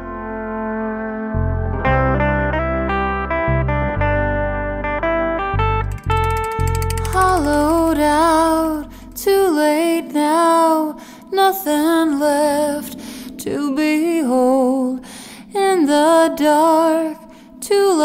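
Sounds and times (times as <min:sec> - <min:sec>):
low musical accompaniment: 0:00.0 - 0:09.4.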